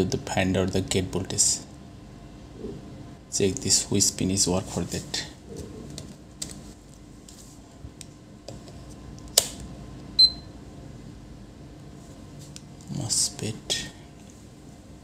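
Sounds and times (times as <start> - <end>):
multimeter short high beep: 10.2 - 10.5.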